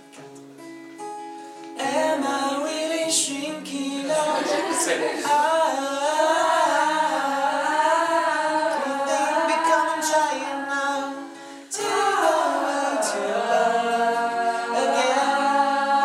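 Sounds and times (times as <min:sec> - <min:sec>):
acoustic guitar picking: 0:00.0 - 0:16.0
group singing in harmony: 0:03.9 - 0:16.0.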